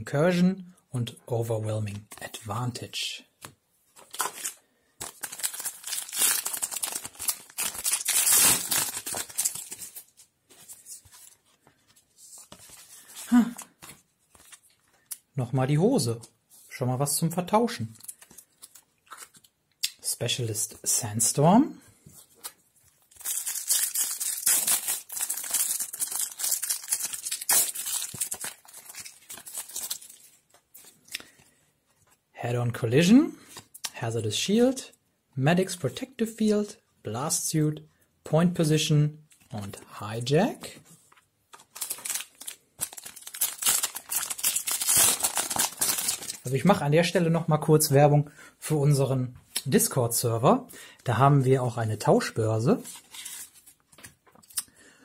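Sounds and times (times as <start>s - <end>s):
wrapper crinkling: 4.0s - 14.9s, 22.4s - 31.2s, 41.5s - 46.6s
foil pack tearing: 5.0s - 9.8s, 23.2s - 30.2s, 41.8s - 46.4s.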